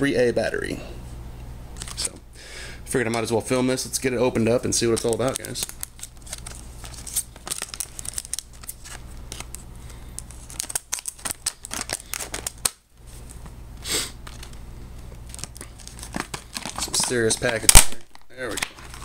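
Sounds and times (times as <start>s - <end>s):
plastic crackling: 4.5s - 13.5s, 14.2s - 19.0s.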